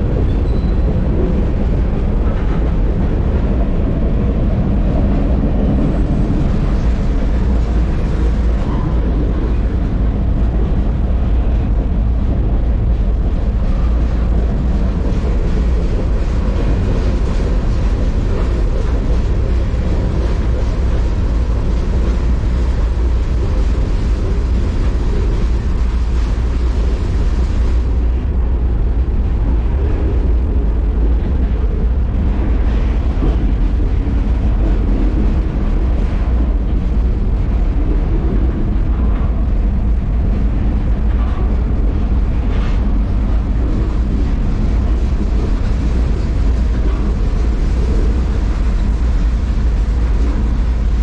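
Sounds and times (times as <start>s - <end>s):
freight train rumbling on rails: 0.0s - 51.0s.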